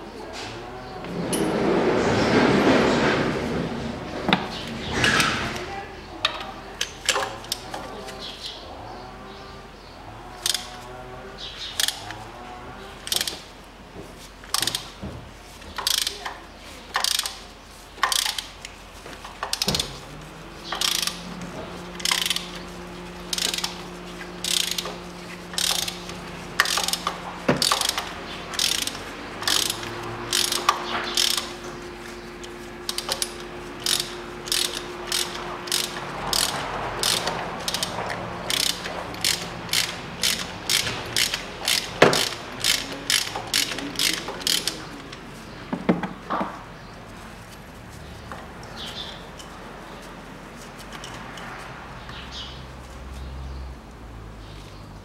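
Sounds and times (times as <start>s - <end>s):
socket ratchet clicking: 17.0s - 17.4s, 20.7s - 21.2s, 22.0s - 22.6s, 23.3s - 23.8s, 24.4s - 25.0s, 25.6s - 31.5s, 32.8s - 44.8s.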